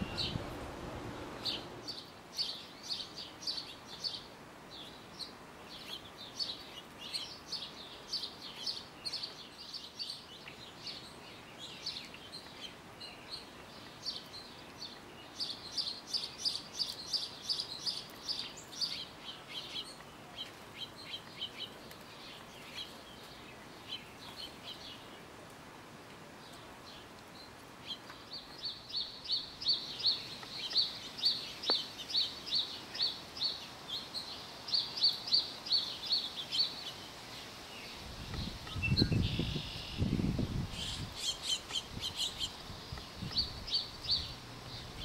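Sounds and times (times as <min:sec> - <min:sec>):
songbirds chirping: 0:00.0 - 0:45.0.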